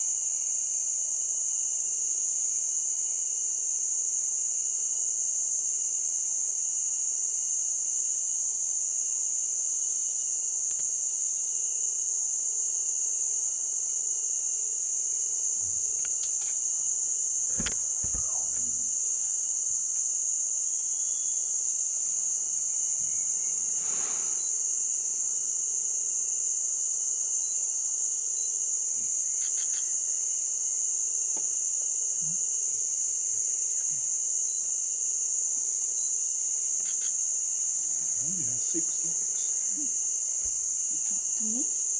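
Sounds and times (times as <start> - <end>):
insects droning: 0.0 - 41.9
brief knocks: 17.5 - 18.9.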